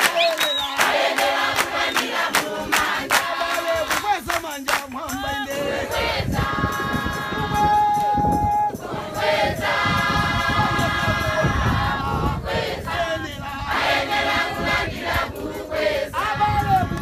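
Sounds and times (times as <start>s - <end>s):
crowd singing gospel song: 0.0s - 17.0s.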